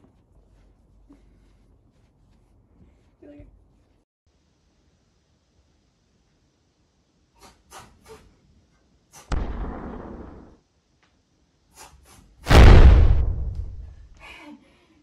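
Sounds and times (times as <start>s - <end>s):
dramatic booms: 9.3s - 10.6s, 12.5s - 14.1s.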